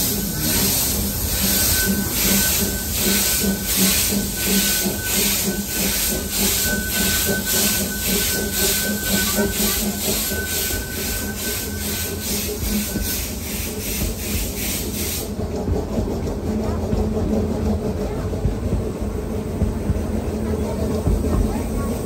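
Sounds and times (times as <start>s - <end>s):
steam hiss: 0.0s - 16.0s
steam locomotive chuffing: 0.0s - 22.0s.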